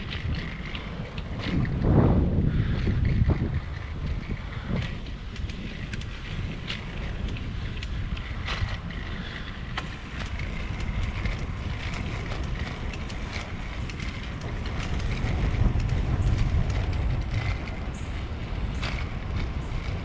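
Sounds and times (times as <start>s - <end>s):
wind rumbling on microphone: 0.0s - 20.0s
sharp ticks: 4.6s - 20.0s.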